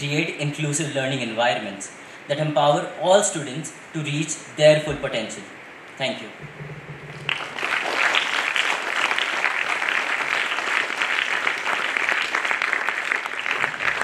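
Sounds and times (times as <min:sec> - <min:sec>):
audience applauding: 0:06.9 - 0:14.0.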